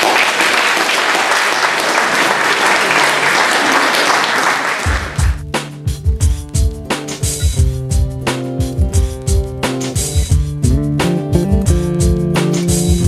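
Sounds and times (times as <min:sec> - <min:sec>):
audience applauding: 0:00.0 - 0:05.4
music with a beat: 0:05.0 - 0:13.0.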